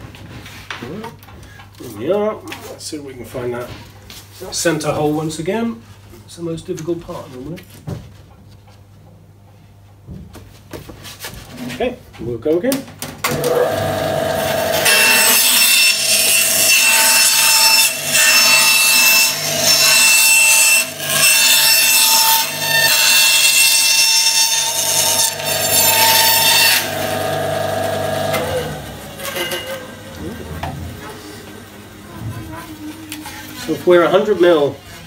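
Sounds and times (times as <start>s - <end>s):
saw blade cutting plywood: 13.3s - 30.1s
bandsaw humming: 13.3s - 33.9s.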